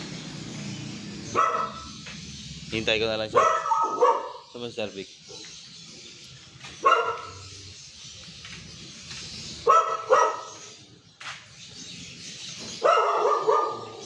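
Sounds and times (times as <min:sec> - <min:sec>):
dog barking: 0:01.3 - 0:02.0, 0:03.3 - 0:04.6, 0:06.8 - 0:07.5, 0:09.6 - 0:10.7, 0:12.8 - 0:14.0.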